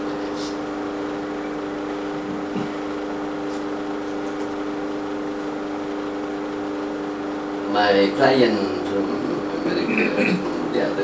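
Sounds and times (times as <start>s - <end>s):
room hum: 0.0s - 11.0s.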